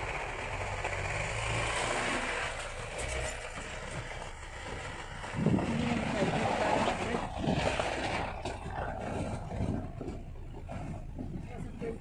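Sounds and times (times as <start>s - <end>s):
ride and wind noise: 0.0s - 12.0s
vehicle engine rumble: 0.0s - 12.0s.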